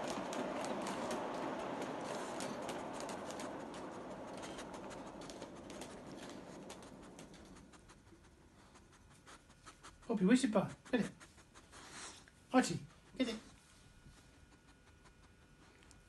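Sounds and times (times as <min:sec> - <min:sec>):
model train whirring: 0:00.0 - 0:08.2
wheels clicking on rails: 0:00.0 - 0:08.2.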